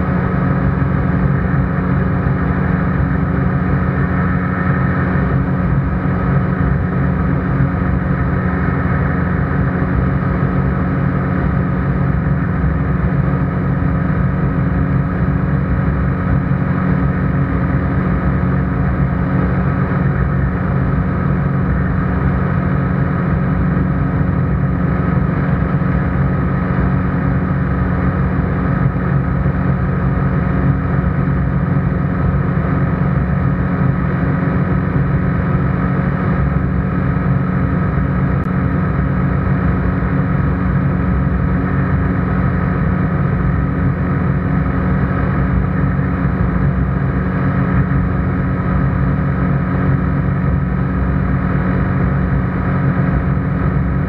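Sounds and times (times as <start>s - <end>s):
aircraft engine and propeller droning: 0.0s - 54.0s.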